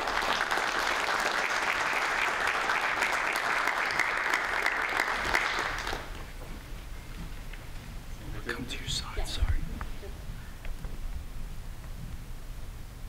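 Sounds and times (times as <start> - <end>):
crowd applauding: 0.0 - 6.5.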